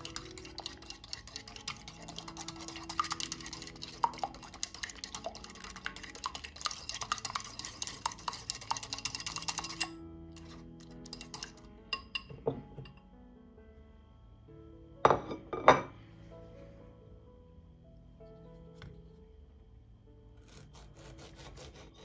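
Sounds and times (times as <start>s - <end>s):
whisk clinking and scraping bowl: 0.0s - 12.3s.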